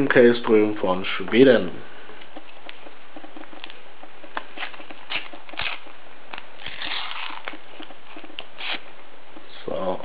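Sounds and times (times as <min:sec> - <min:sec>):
packet tearing rustle: 0:03.4 - 0:08.9
wrapper crackling: 0:03.5 - 0:08.8.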